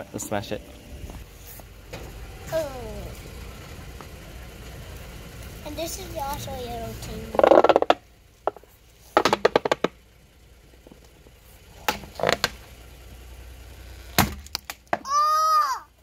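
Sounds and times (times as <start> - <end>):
plastic decoy cracking under tyre: 7.4 - 8.6, 9.2 - 10.0, 14.1 - 15.1.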